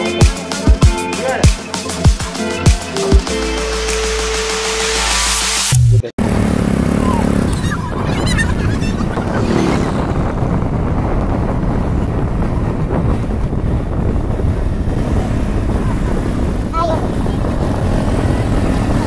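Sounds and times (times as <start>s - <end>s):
music: 0.0s - 5.8s
road and wind noise: 5.0s - 19.0s
motorcycle engine running: 5.8s - 19.0s.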